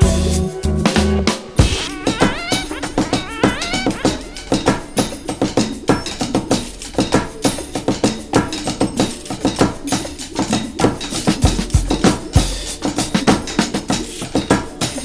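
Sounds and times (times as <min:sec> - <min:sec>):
deep bass notes: 0:00.0 - 0:02.4
fast drum beat: 0:00.0 - 0:15.0.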